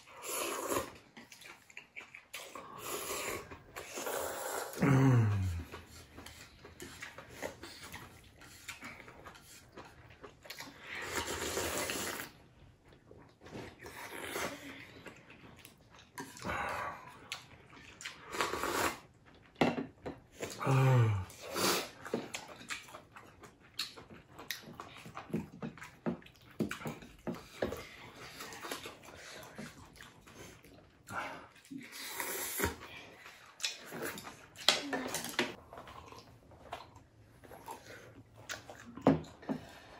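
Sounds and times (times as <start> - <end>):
people slurping noodles: 0.0 - 9.7, 10.5 - 12.4, 13.5 - 15.0, 18.1 - 19.1, 20.3 - 22.3, 27.3 - 36.4
chewing: 0.0 - 39.9.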